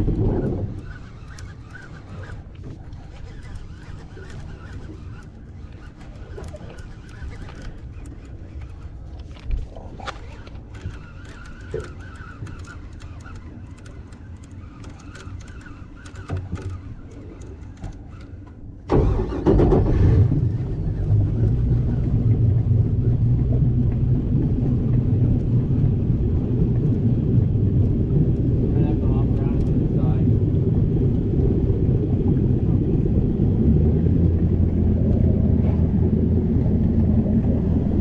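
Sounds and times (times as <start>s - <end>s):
fishing reel ticks and knocks: 0.0s - 18.6s, 27.8s - 30.2s
boat engine rumbling: 0.0s - 38.0s.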